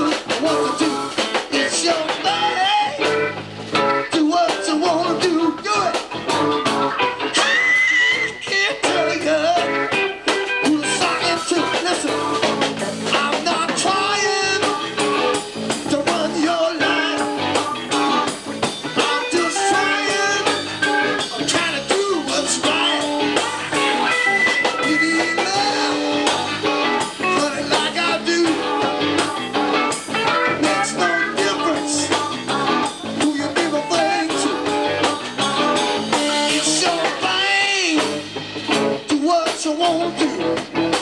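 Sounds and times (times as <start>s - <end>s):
electric bass: 0.0s - 41.0s
electric guitar: 0.0s - 41.0s
keyboards: 0.0s - 41.0s
drum hits: 8.6s - 41.0s.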